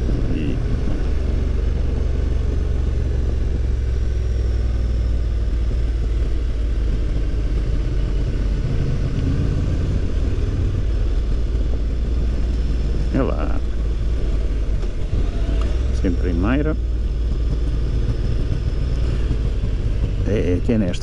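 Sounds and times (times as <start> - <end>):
motorcycle engine rumble: 0.0 - 21.0
road noise: 0.0 - 21.0.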